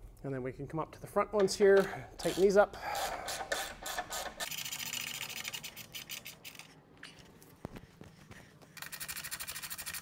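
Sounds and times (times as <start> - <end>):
ratchet clicking: 8.8 - 10.0.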